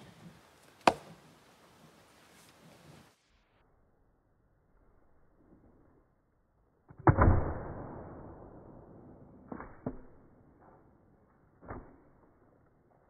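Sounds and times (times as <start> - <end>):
axe knocks on wood: 0.8 - 1.1
axe splitting firewood: 0.8 - 1.2.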